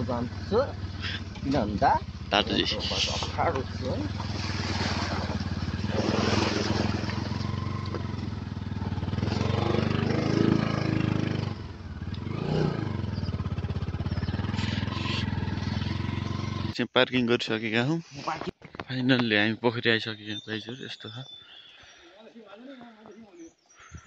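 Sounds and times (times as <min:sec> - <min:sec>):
motorcycle engine running: 0:00.0 - 0:16.8.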